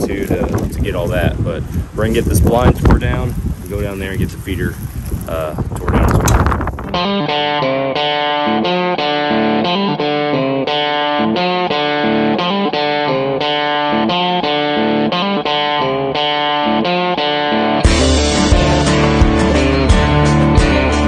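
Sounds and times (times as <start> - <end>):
electric guitar riff: 6.0 - 21.0.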